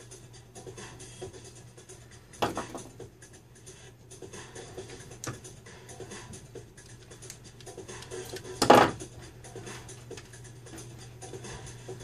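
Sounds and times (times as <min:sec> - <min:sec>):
steady low hum: 0:00.0 - 0:12.0
crimpers squeezing terminals: 0:04.9 - 0:11.4
small clicks and scratching of tools: 0:06.8 - 0:08.8.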